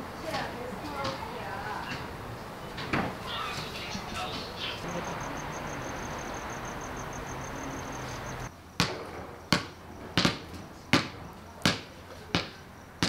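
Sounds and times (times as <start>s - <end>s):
basketball bouncing on concrete: 1.0s - 1.3s, 8.8s - 12.7s.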